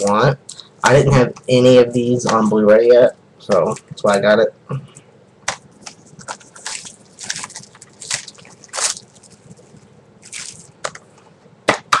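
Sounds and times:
plastic and cardboard packaging rustling: 5.6 - 11.2.

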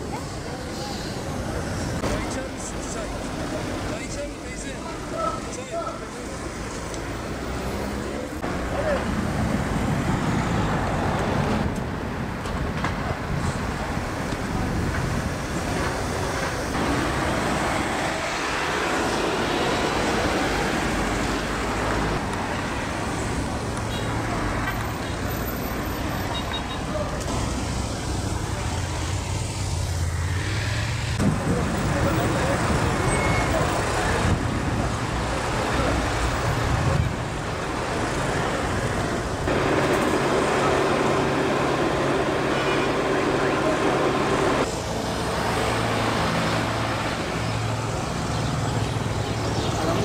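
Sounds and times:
street traffic: 0.0 - 50.0
vehicle engine running: 39.5 - 45.0.

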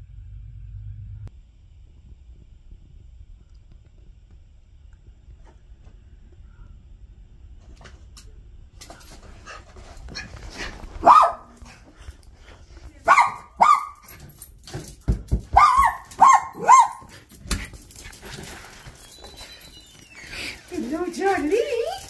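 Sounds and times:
small dog yipping: 11.0 - 11.5, 15.6 - 17.1.

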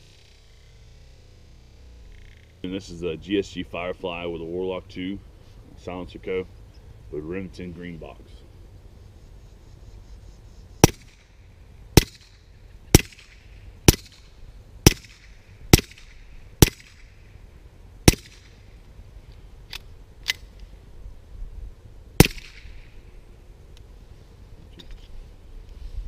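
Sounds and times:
suppressed pistol shots: 10.8 - 11.4, 12.0 - 17.2, 18.0 - 18.6, 22.2 - 22.9.

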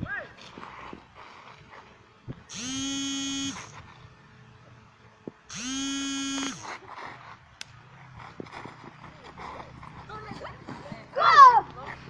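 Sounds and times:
buzzer tone: 2.5 - 3.7, 5.5 - 6.7.

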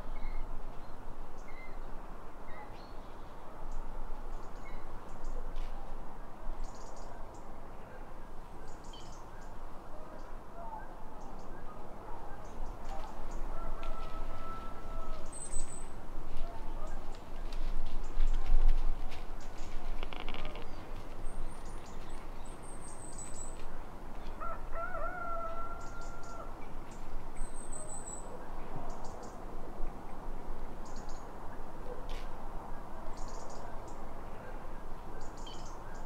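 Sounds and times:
faint rustles: 12.8 - 24.4.

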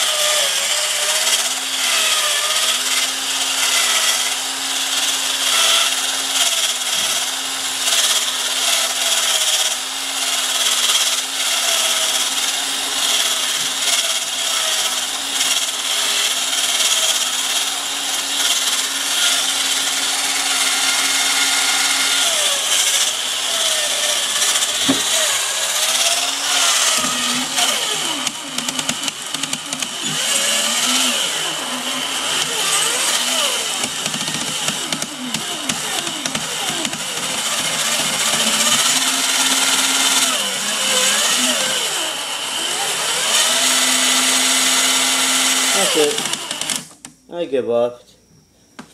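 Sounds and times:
toy robot motor and gears whirring: 18.2 - 42.1, 45.5 - 47.0.

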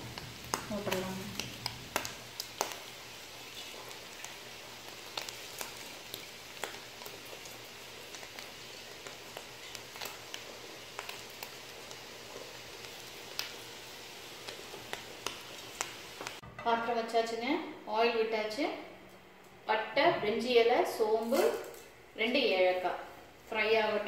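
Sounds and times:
pot of water boiling: 0.0 - 16.4.

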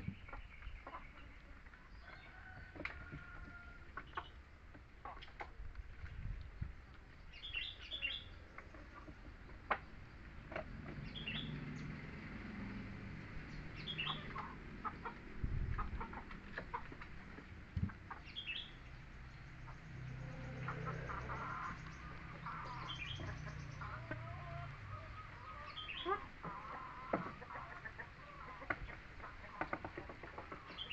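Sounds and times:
soft clucking calls: 13.8 - 18.8, 19.7 - 30.9.

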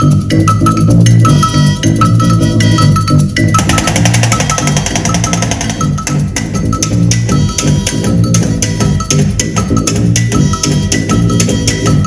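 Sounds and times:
repeating bass line: 0.0 - 12.0
rapid percussion strokes: 3.5 - 6.8.

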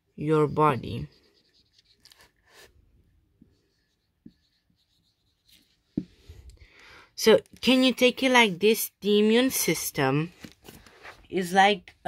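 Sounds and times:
marker scratching on whiteboard: 0.3 - 6.2.

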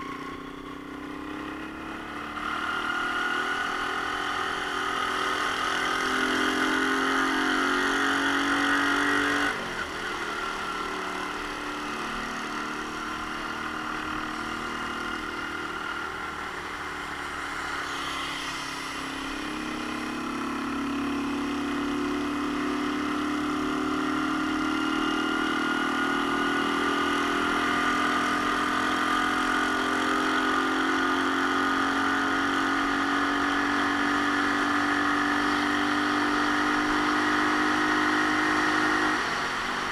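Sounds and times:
motorcycle engine accelerating: 0.0 - 39.9
rushing noise: 17.2 - 20.2.

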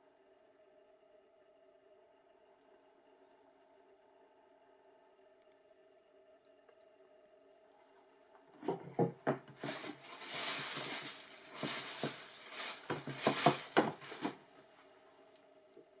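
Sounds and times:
tissue paper crinkling: 8.6 - 14.5.

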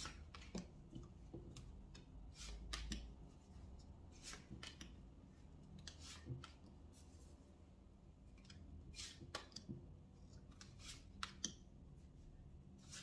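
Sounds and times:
cards sliding and tapping: 0.0 - 3.2, 4.1 - 5.0, 8.4 - 9.8, 10.4 - 11.6.

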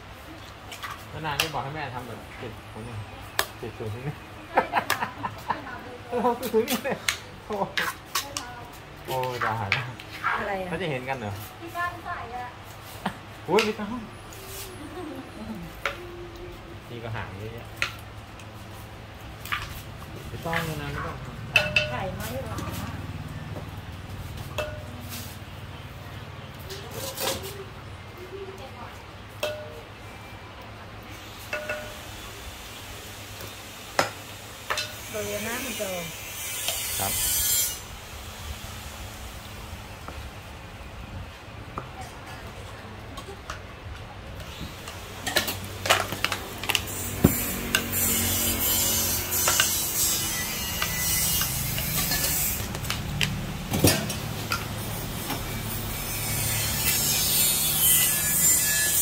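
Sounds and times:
metal utensils and bowls clinking: 19.4 - 23.0, 24.4 - 25.4, 26.6 - 27.6, 29.4 - 29.8, 31.4 - 32.1, 34.0 - 35.8, 44.4 - 59.0.

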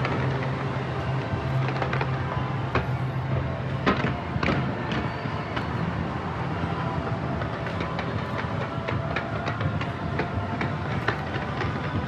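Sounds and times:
dense continuous din: 0.0 - 12.0
sharp firework bangs: 0.0 - 12.0.

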